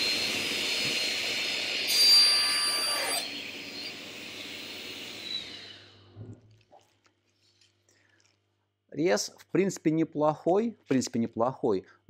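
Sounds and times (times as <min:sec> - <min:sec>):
saw blade whining: 0:00.0 - 0:06.0
table saw cutting wood: 0:00.0 - 0:06.0.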